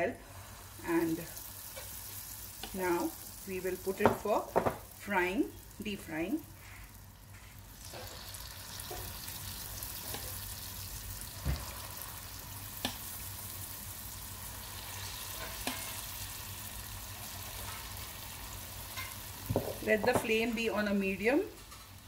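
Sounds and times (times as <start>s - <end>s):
batter sizzling in hot oil: 0.0s - 22.0s.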